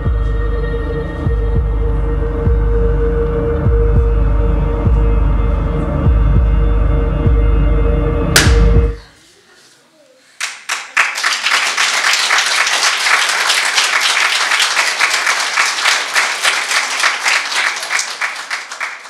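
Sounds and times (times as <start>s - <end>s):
audience applauding: 10.4s - 19.0s.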